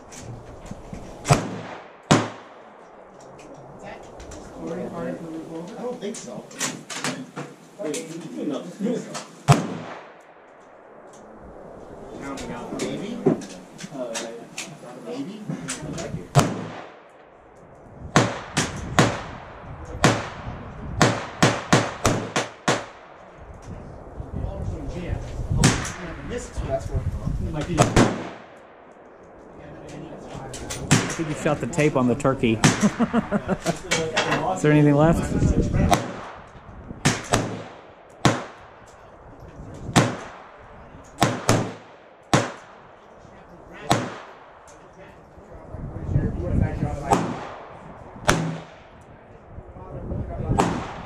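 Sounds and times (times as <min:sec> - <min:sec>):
rifle shots: 0:01.2 - 0:03.1, 0:09.5 - 0:11.0, 0:16.3 - 0:17.2, 0:18.1 - 0:23.3, 0:27.7 - 0:29.4, 0:30.7 - 0:32.0, 0:35.8 - 0:38.9, 0:39.9 - 0:43.0, 0:43.8 - 0:44.7, 0:47.0 - 0:49.0, 0:50.5 - 0:51.0.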